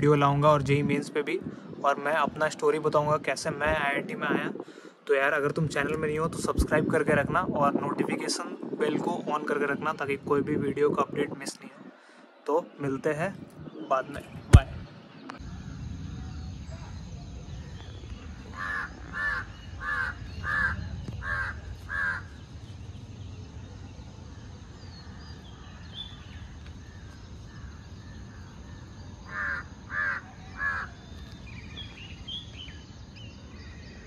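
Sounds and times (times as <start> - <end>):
crow cawing: 18.5 - 22.3, 29.2 - 31.0.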